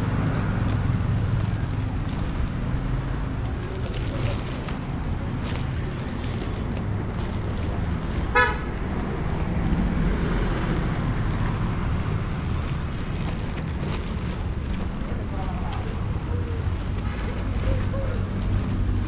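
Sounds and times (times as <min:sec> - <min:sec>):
street traffic rumble: 0:00.0 - 0:19.0
vehicle horn toot: 0:08.3 - 0:08.7.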